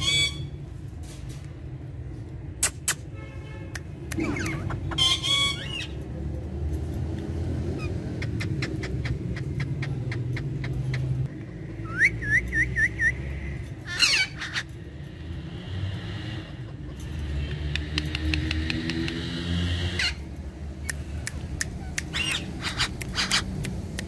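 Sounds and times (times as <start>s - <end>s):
parakeet squawk: 0.0s - 0.6s, 4.2s - 6.0s, 13.8s - 14.8s, 19.6s - 20.3s, 21.8s - 23.5s
parakeets calling: 0.0s - 0.6s, 4.2s - 6.1s, 7.4s - 11.2s, 12.4s - 20.5s, 21.6s - 23.7s.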